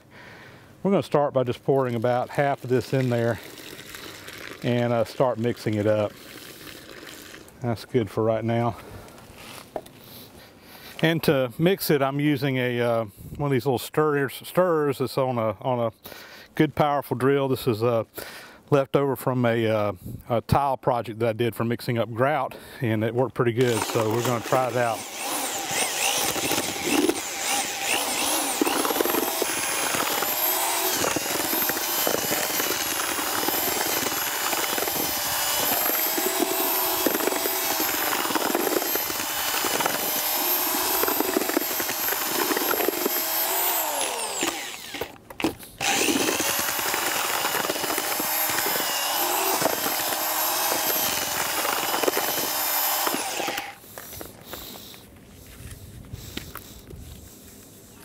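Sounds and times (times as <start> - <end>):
drill mixer whining: 23.6 - 45.2, 45.8 - 53.8.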